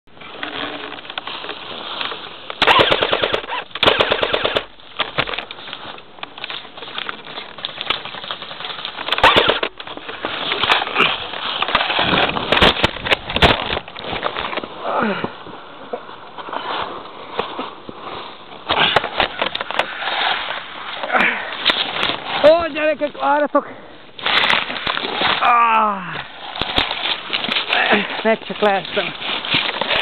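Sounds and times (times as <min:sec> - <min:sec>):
airsoft rifle firing bursts: 0:02.6 - 0:04.7, 0:09.2 - 0:09.7.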